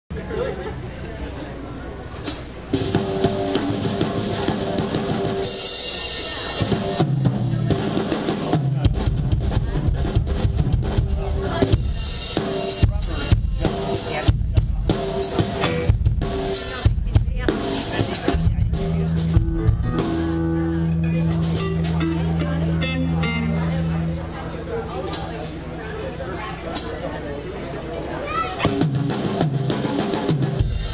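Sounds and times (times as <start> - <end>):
live rock band: 2.0 - 30.9
drum kit: 2.2 - 25.7, 28.6 - 30.9
heavy bass drum beats: 2.7 - 24.5, 28.6 - 30.9.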